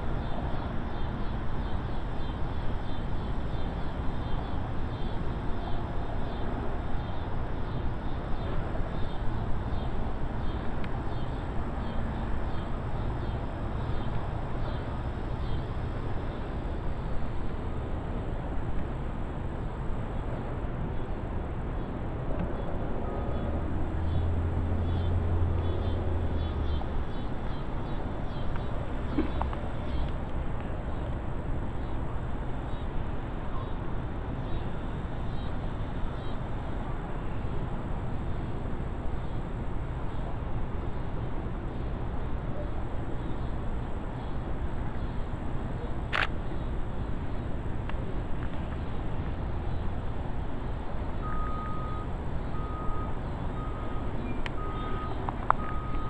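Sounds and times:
low outdoor background noise: 0.0 - 56.0
sharp click: 46.1 - 46.4
reversing alarm beeping: 51.2 - 56.0.

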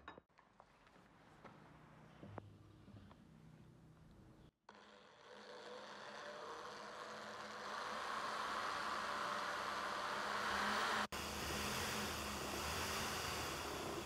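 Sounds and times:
electric drill boring into wood: 4.7 - 14.0.

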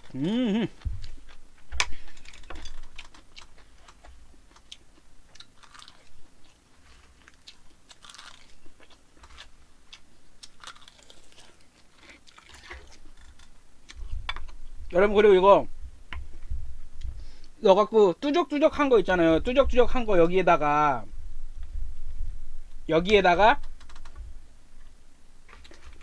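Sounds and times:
crunches: 0.0 - 4.7
person chewing food: 0.0 - 14.7.

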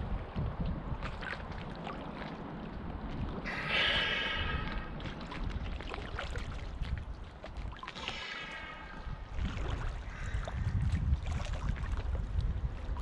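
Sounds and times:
water sloshing and gurgling: 0.0 - 13.0
small clicks and splashes: 0.3 - 3.5, 5.0 - 13.0
whistle-like hiss: 3.5 - 4.9.

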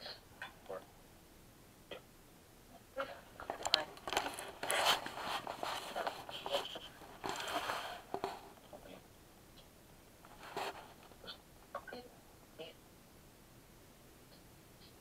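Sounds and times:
rustling handling noise: 3.4 - 8.7, 10.2 - 11.2.

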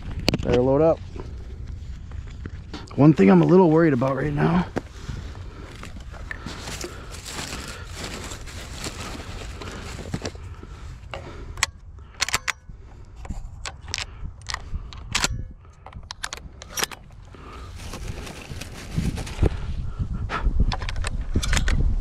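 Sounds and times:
rustling: 3.4 - 10.6, 17.4 - 19.6
shotgun loading metallic clicks: 11.6 - 12.6, 13.6 - 17.2.

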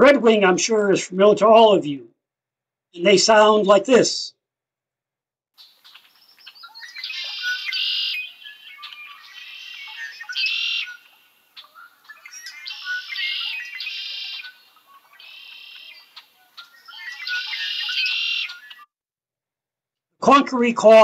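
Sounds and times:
blackbird singing with buzzy trill: 5.6 - 18.8.

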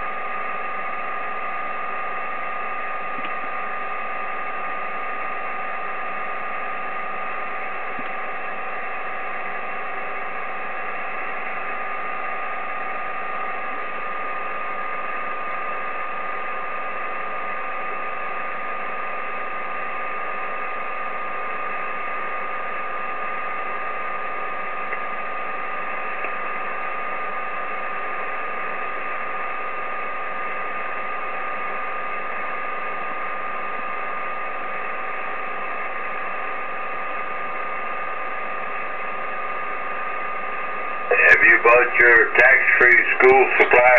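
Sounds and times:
radio static hiss: 34.5 - 43.9.

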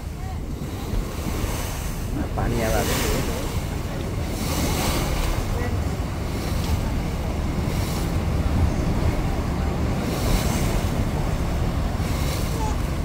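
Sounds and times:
boat engine low rumble: 0.0 - 13.0
wind buffeting microphone: 0.0 - 13.0.

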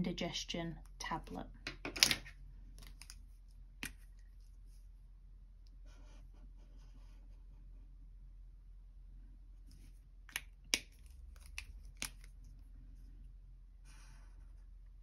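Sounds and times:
pens clicking: 1.7 - 3.2, 3.8 - 4.2, 10.3 - 12.5.

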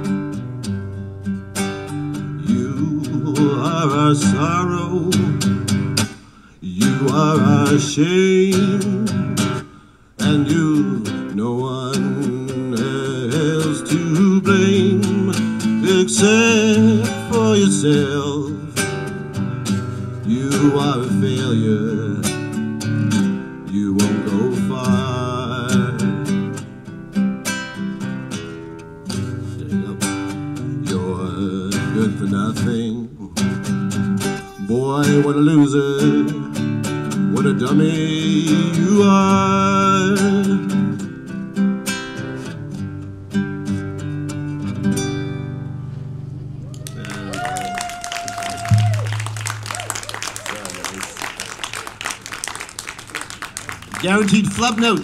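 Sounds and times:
classical guitar strummed and picked: 0.0 - 46.6, 53.8 - 55.0
man singing: 2.2 - 5.7, 6.6 - 19.3, 20.1 - 26.6, 29.2 - 33.7, 34.6 - 41.1, 54.0 - 55.0.

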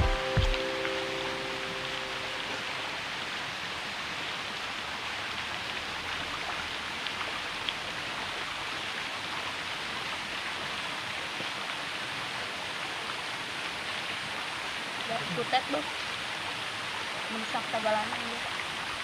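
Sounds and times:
waterfall rushing: 0.0 - 19.0.

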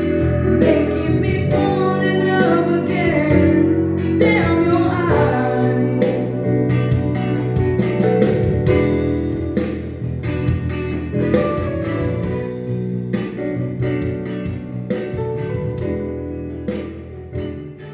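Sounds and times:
steady bass line: 0.0 - 17.9.

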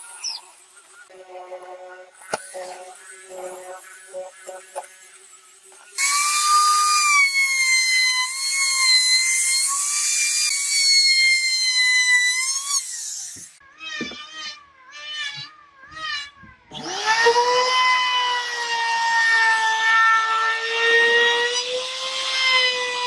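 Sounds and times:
electric router cutting wood: 2.2 - 14.2, 16.7 - 23.0.

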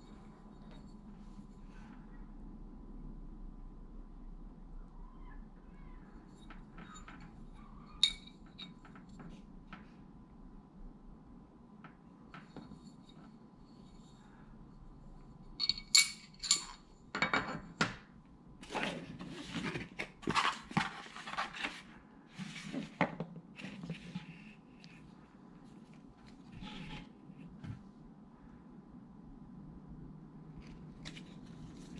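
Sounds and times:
metal parts clinking on table: 8.0 - 8.8, 15.6 - 17.8.

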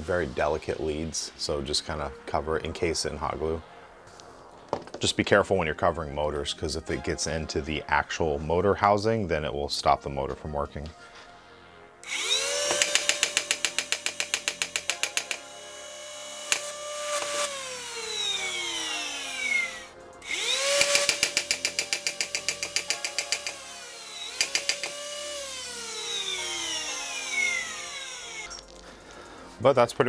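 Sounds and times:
flywheel motors whining: 12.0 - 28.5.

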